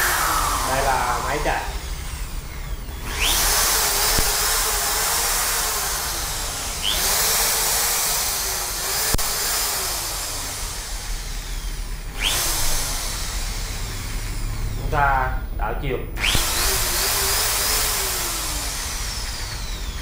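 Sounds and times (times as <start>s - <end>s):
electric drill motor whining: 0.0s - 15.1s, 16.2s - 20.0s
sharp click: 4.1s - 4.5s.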